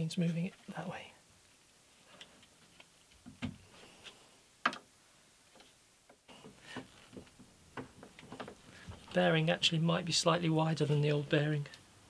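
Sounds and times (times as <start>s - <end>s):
light clicks and knocks: 5.5s - 9.1s.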